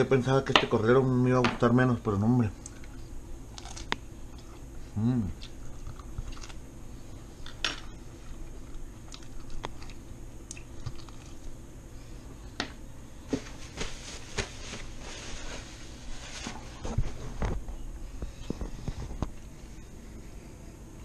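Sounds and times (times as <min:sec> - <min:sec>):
person chewing meat: 0:02.6 - 0:06.6, 0:08.2 - 0:11.6.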